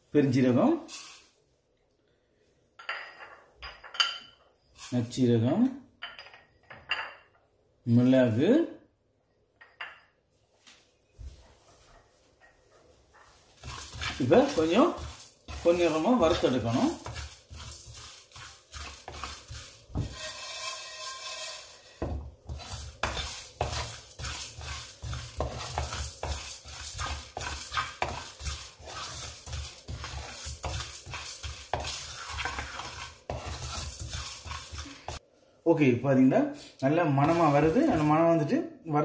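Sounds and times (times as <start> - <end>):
spoon scraping spices in pan: 0.3 - 1.4, 4.6 - 5.2, 11.8 - 35.2, 37.0 - 38.5.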